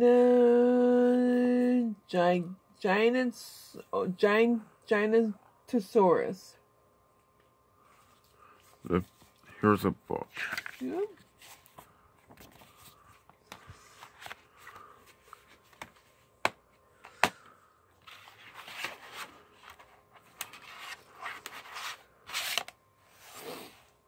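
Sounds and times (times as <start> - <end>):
paper and plastic case rustling: 18.0 - 22.7.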